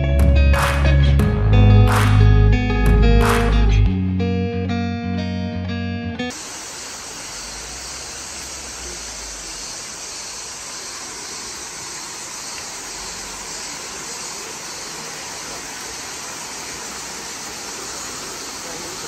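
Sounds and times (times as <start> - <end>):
waterfall roaring: 6.3 - 19.0.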